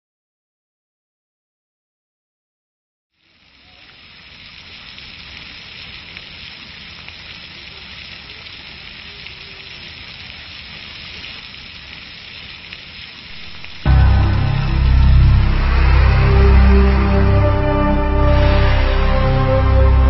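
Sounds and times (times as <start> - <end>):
water jet spraying: 13.2 - 20.0
loud music: 13.3 - 20.0.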